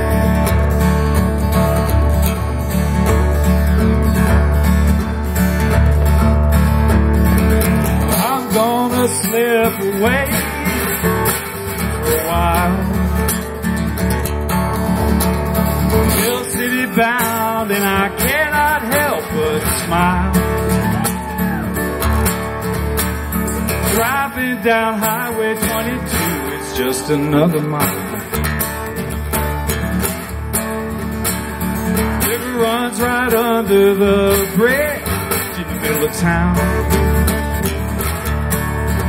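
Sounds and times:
acoustic guitar strumming: 0.0s - 39.0s
man singing: 7.9s - 13.6s, 16.0s - 21.6s, 23.6s - 28.5s, 32.0s - 37.6s.

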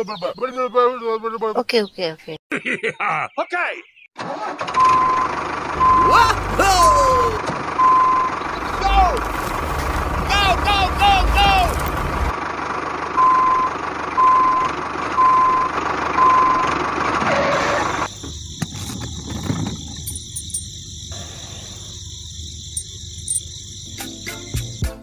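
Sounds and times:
electronic reversing beeps: 4.8s - 6.6s, 7.8s - 8.7s, 13.2s - 16.7s.

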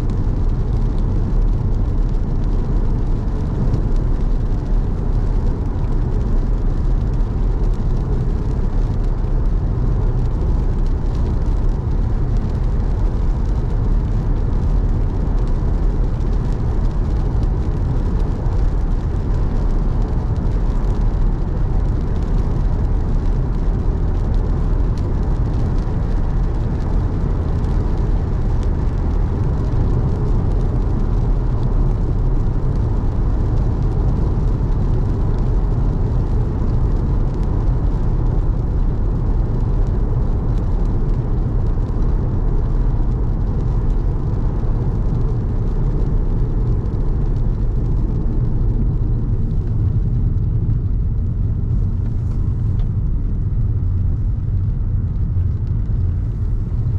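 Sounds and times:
car driving on wet road: 0.0s - 56.9s.

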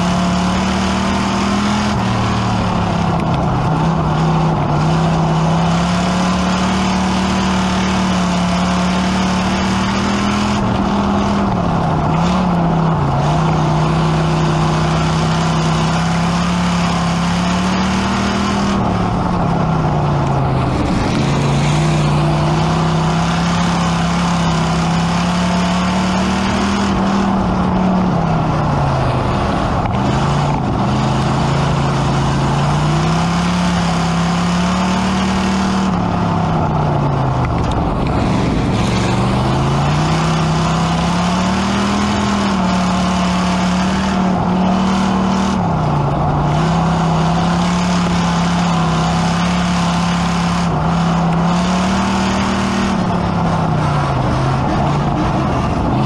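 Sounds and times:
race car engine revving: 0.0s - 56.0s
wind and chassis noise: 0.0s - 56.0s.

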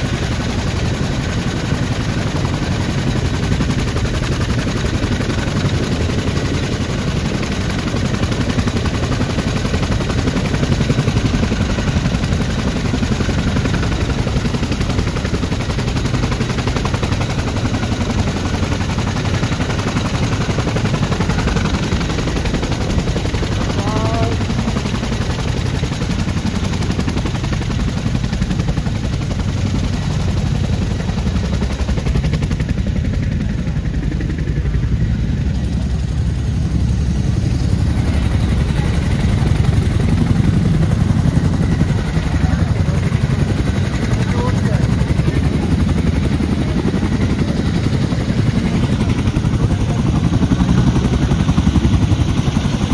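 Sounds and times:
helicopter rotors chopping: 0.0s - 52.9s
turbine engines running: 0.0s - 52.9s.

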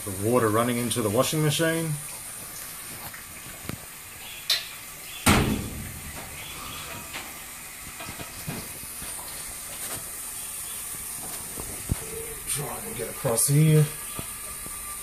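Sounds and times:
water filter hissing: 0.0s - 15.0s
loud thump: 5.2s - 6.3s.

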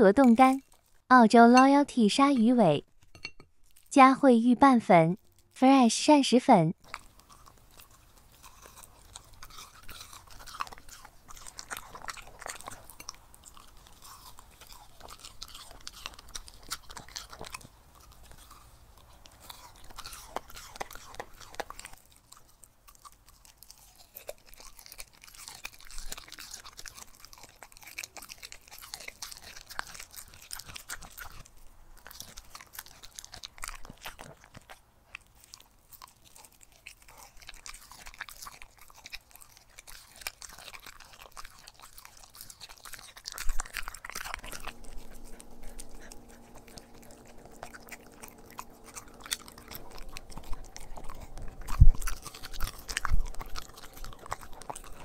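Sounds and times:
dog chewing raw meat: 6.8s - 55.0s.

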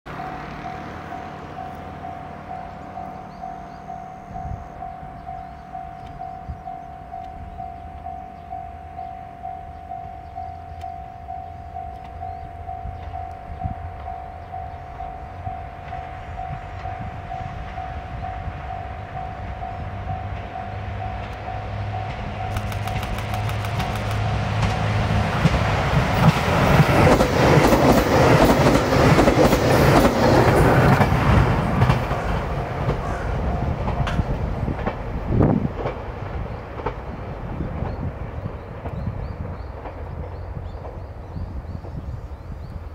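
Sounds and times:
diesel train engine hum: 0.1s - 42.9s
train wheels clicking over rails: 20.3s - 42.0s.

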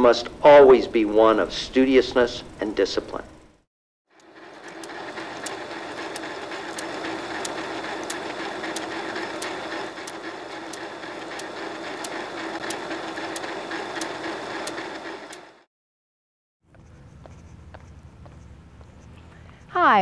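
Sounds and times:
film projector whirring and ticking: 4.1s - 15.7s.

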